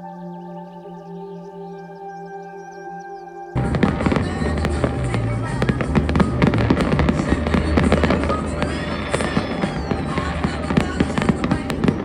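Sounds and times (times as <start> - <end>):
fireworks bangs and crackling: 3.6 - 12.0
steady low rumble: 3.6 - 12.0.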